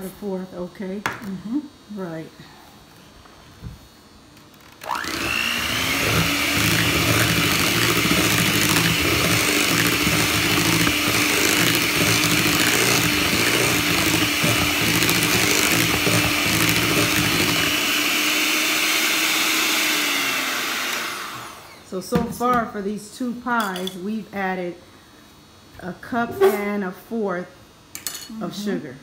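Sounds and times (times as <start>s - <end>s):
electric hand mixer whining: 4.7s - 21.9s.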